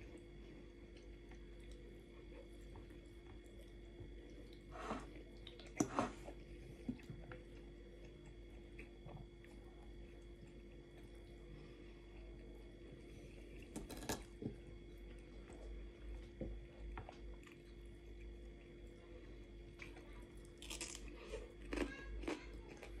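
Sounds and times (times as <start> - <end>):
quiet chewing: 0.1 - 23.0
crisp cucumber crunching: 20.6 - 23.0.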